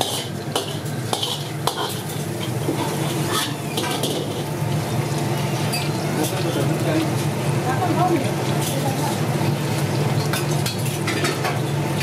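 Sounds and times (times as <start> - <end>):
metal ladle scraping and clinking: 0.0 - 2.0, 2.8 - 4.5
deep-frying oil sizzling: 0.0 - 12.0.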